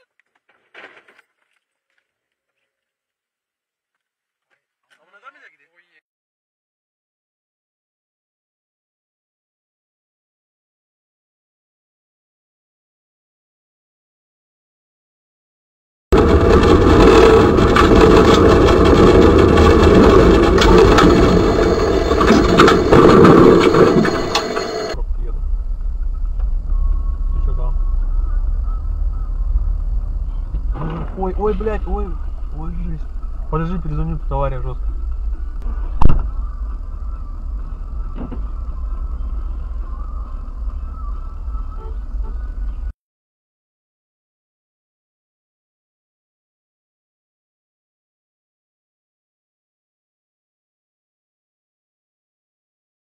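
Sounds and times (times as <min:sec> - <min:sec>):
clicks and rattles: 0:16.2 - 0:25.0
car engine idling: 0:16.2 - 0:42.9
tram running gear rumble: 0:16.2 - 0:42.9
loud thump: 0:35.7 - 0:36.4.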